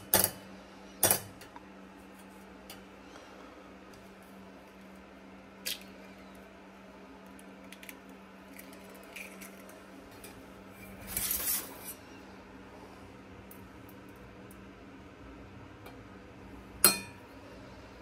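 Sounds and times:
egg cracking: 4.8 - 10.5
scraping rustle: 10.8 - 12.0.

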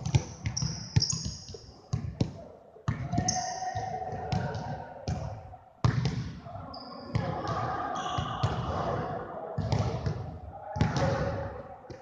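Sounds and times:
basketballs bouncing on wooden floor: 0.0 - 6.3.

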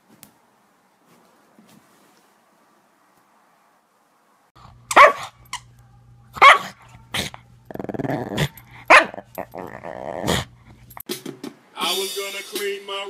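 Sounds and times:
dog barking sharply: 4.9 - 5.3, 6.4 - 6.7, 8.9 - 9.2
dog growling: 7.1 - 10.8.

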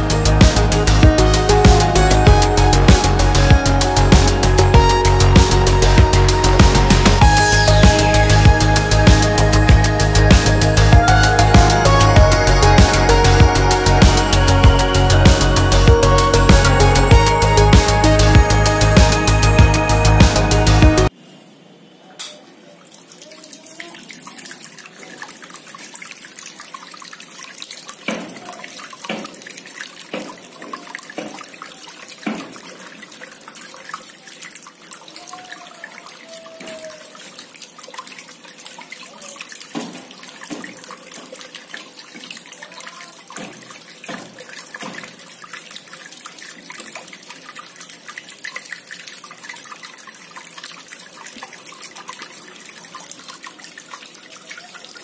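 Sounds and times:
fountain water splashing: 0.0 - 21.2, 22.7 - 55.0
water bubbling from spout: 23.0 - 55.0
water drops plopping: 23.2 - 55.0.

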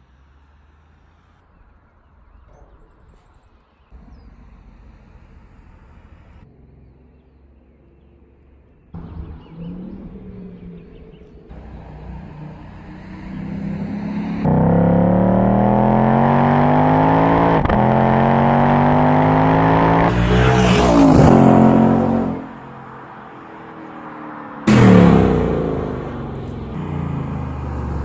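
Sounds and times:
car exhaust accelerating hard: 4.0 - 22.9, 24.6 - 28.0.

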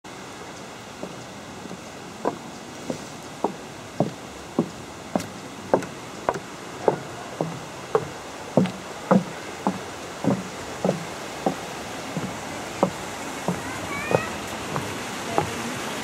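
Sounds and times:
footsteps on wooden boardwalk: 0.1 - 16.0.

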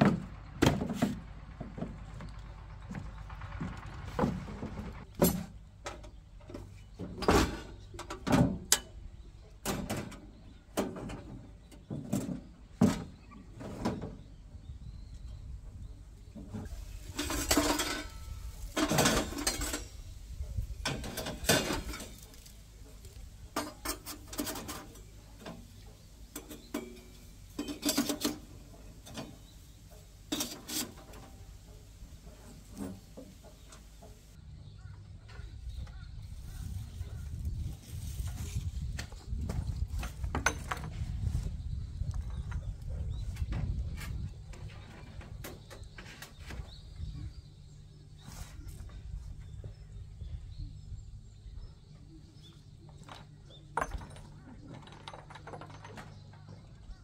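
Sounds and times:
metal camping gear clinking: 17.0 - 20.2, 26.3 - 31.7.

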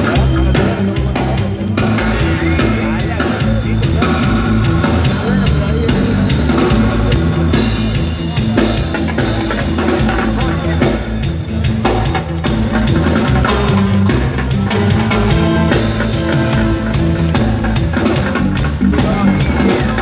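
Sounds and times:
reggae band playing: 0.0 - 20.0.

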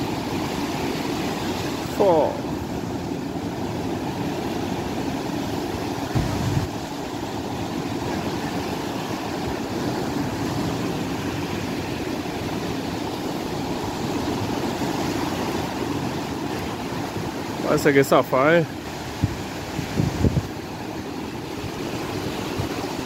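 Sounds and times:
waves breaking on beach: 0.0 - 23.0
low thump: 6.1 - 6.6.

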